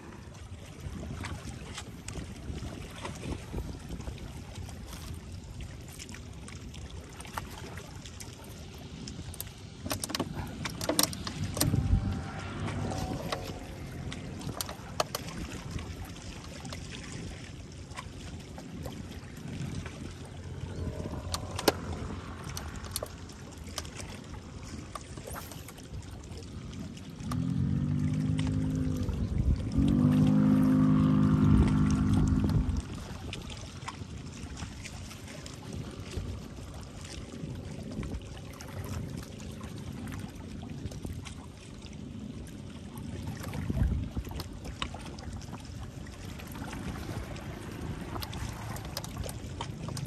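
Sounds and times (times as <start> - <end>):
wind buffeting microphone: 0.0 - 50.0
handling clicks and knocks: 9.8 - 11.8.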